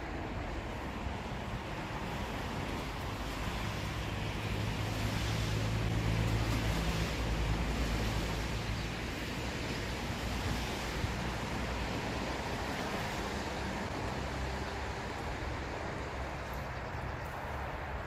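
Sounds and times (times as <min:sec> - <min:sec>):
low engine-like hum: 0:00.0 - 0:18.0.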